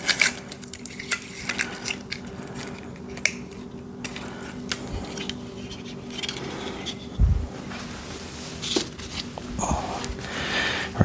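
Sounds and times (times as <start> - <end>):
tape being peeled off: 0.0 - 7.0.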